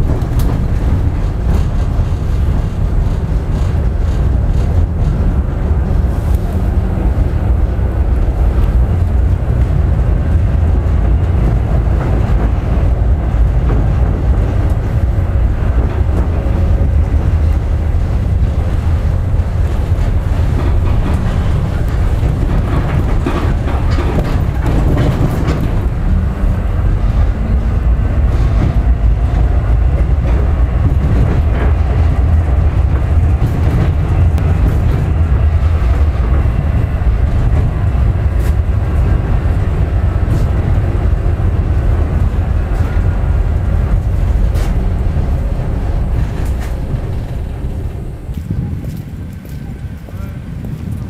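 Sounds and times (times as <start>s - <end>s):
tram rumbling: 0.0s - 51.0s.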